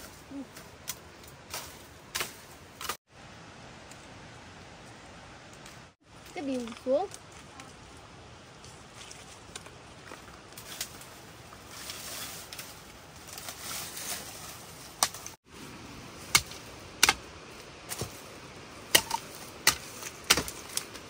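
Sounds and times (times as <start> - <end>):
rustling: 5.6 - 16.7
bamboo cracking and snapping: 18.9 - 21.0.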